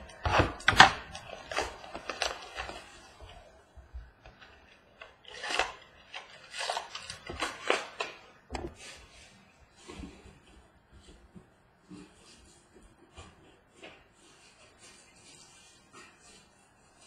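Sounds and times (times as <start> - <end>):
foil pack rustling and tearing: 0.0 - 3.3, 4.9 - 8.2.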